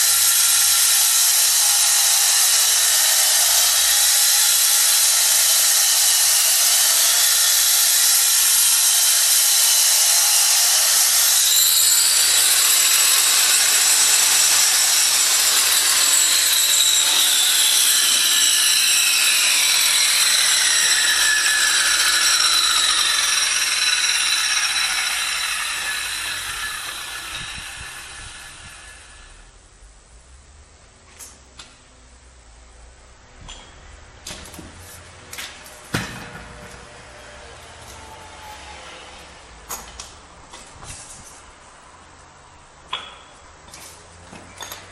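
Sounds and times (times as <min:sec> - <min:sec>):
power tool hissing on marble: 0:00.0 - 0:29.5
high whine winding down: 0:00.0 - 0:29.7.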